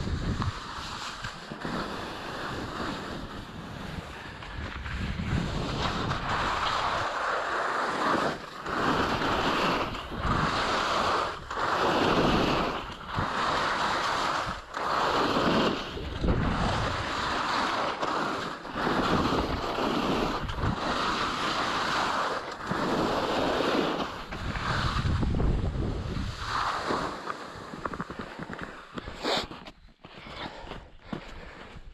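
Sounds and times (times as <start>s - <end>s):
wind buffeting microphone: 0.0s - 0.8s, 2.2s - 7.1s, 8.7s - 17.4s, 18.8s - 21.6s, 22.6s - 28.5s
skis scraping over snow: 0.0s - 31.9s.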